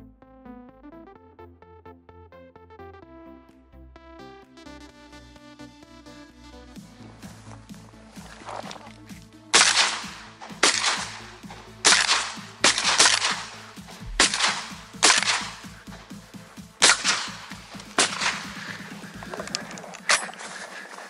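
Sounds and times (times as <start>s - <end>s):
shotgun shots: 9.5s - 20.6s.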